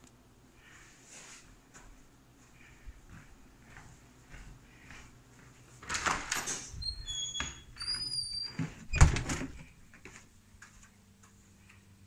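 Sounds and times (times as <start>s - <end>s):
door squeaks: 6.0s - 9.5s.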